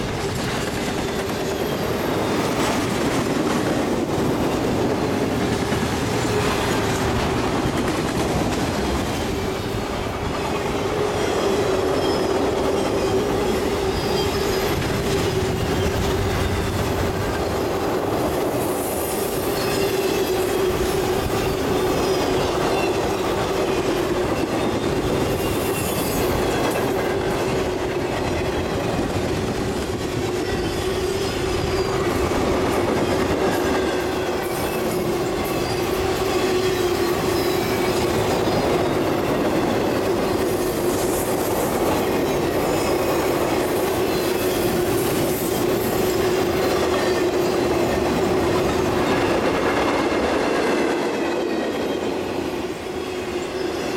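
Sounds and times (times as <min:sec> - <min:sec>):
freight train wheels rumbling: 0:00.0 - 0:53.9
high wheel squeals: 0:00.9 - 0:03.0, 0:09.4 - 0:17.7, 0:18.3 - 0:29.0, 0:30.3 - 0:49.4.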